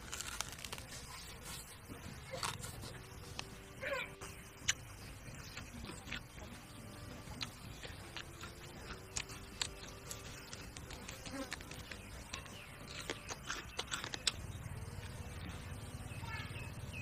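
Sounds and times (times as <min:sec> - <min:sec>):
meat being torn and eaten: 0:00.0 - 0:01.6, 0:02.3 - 0:03.5, 0:04.6 - 0:06.5, 0:07.1 - 0:15.1
insect buzzing: 0:07.6 - 0:12.0.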